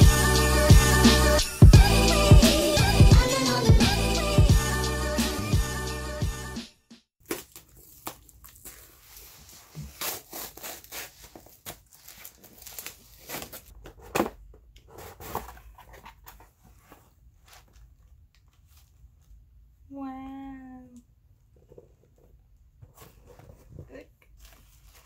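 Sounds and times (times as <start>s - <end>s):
intro music: 0.0s - 6.7s
packaging rustling and tearing: 7.2s - 17.0s.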